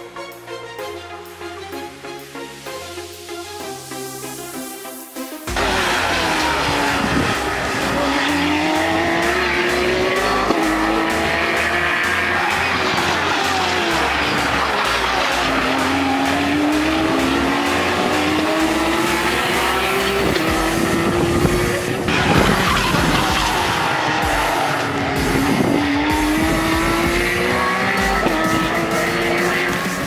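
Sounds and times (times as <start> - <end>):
electronic music with bass beat: 1.9 - 30.0
race car engines at full throttle: 5.5 - 30.0.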